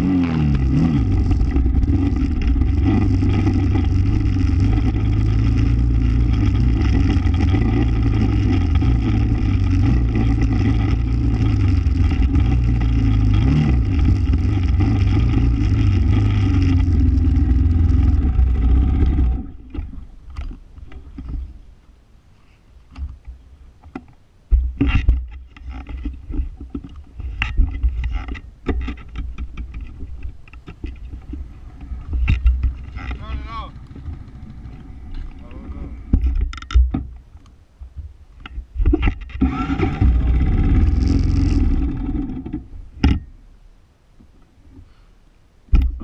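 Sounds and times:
atv engine running: 0.0 - 20.2, 31.0 - 35.8, 39.4 - 42.8
vehicle rattling on dirt trail: 0.0 - 21.5, 24.6 - 36.8, 38.9 - 43.2.

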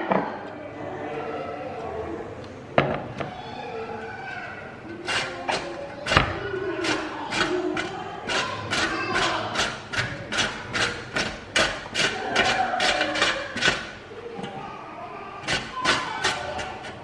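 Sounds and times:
pepper scraping on a grater: 4.9 - 14.0, 15.4 - 17.0.

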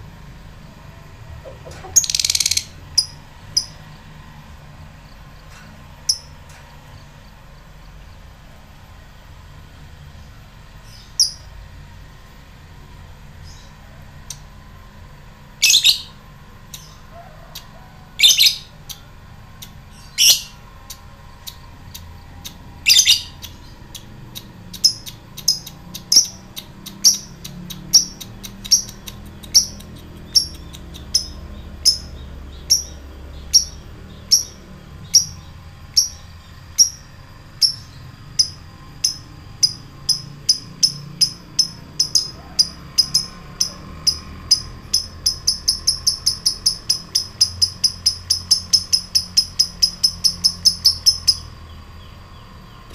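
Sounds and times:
bird harsh calls: 1.4 - 3.7, 22.8 - 23.7
bird ticking chirps: 1.4 - 4.0, 5.2 - 8.1, 15.6 - 52.9.

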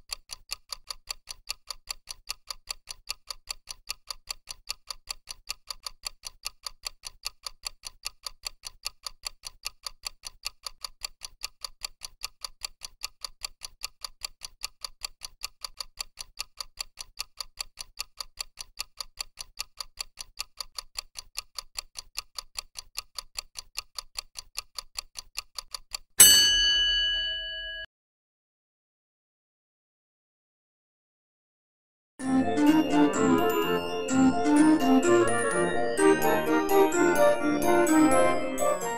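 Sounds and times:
clock ticking: 0.0 - 26.3, 32.2 - 38.9
bell-like ring: 26.2 - 27.9.

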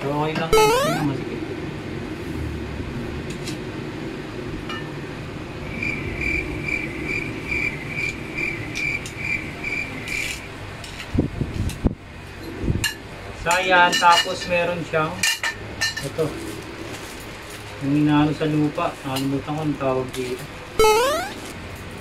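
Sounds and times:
high chirps: 0.6 - 1.1, 20.8 - 21.4.

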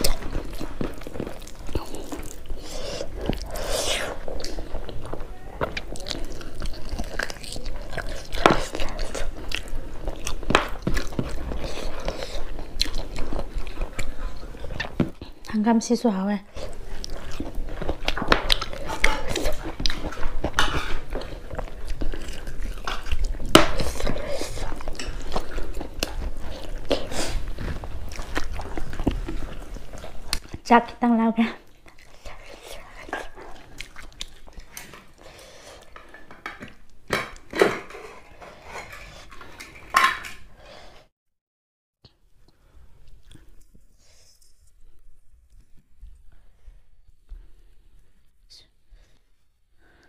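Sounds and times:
wet chewing with mouth clicks: 0.0 - 15.6, 16.5 - 30.7, 31.6 - 37.5, 42.4 - 46.4
spoon scraping a pot: 20.6 - 21.1.

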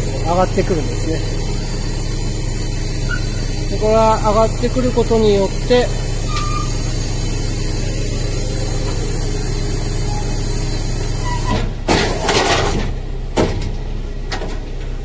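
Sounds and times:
hydraulic hissing: 0.0 - 13.0
hydraulic pump hum: 0.0 - 15.0.

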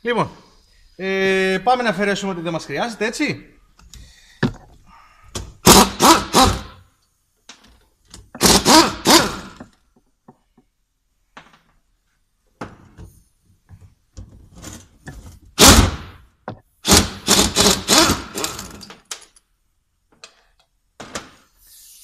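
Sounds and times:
pneumatic impact wrench: 5.6 - 6.8, 8.4 - 9.6, 15.6 - 16.2, 16.8 - 18.8.

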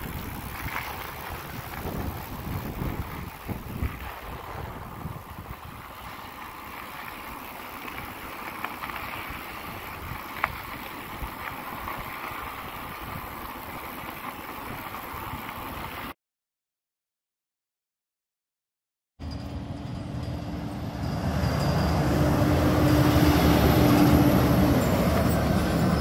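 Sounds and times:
wind rumbling on microphone: 0.0 - 7.2, 7.8 - 16.1
gravel ticks: 0.0 - 16.1
bike tyres rolling on gravel: 0.0 - 16.2, 21.6 - 26.0.

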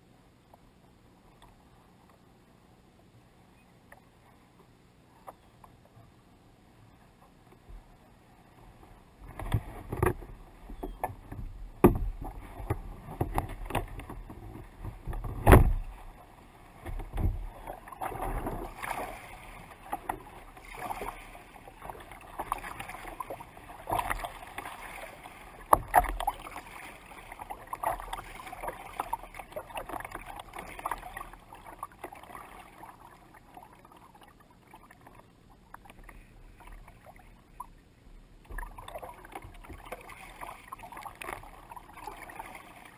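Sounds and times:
water lapping against kayak hull: 3.3 - 42.9.

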